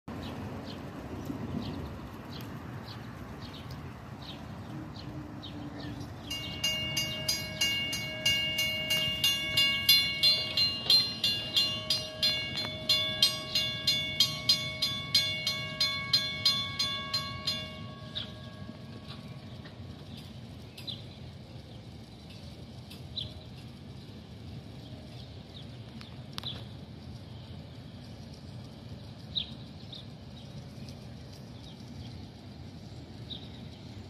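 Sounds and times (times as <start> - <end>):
crossing warning bell ringing: 6.0 - 20.6.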